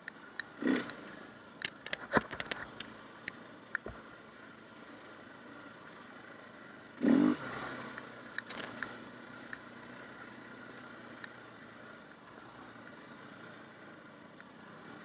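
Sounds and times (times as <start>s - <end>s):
sharp clicks and rattles: 1.6s - 4.0s, 8.4s - 8.9s.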